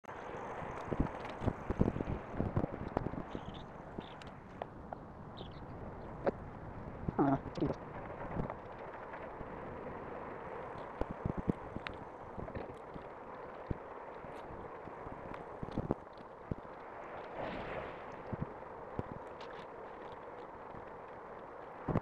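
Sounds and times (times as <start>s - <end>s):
wind noise on microphone: 0.1s - 22.0s
bike rattling on pavement: 7.8s - 22.0s.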